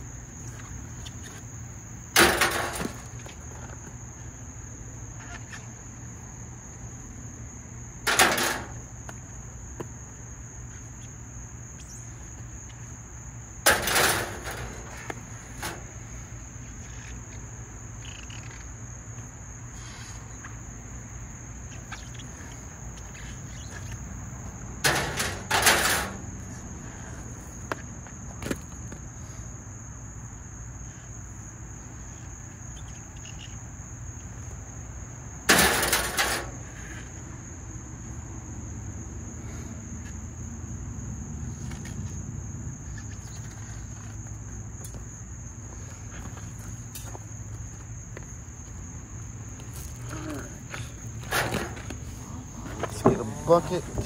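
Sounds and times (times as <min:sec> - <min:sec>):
insects droning: 0:00.0 - 0:54.0
copper pipe clattering: 0:24.8 - 0:26.3.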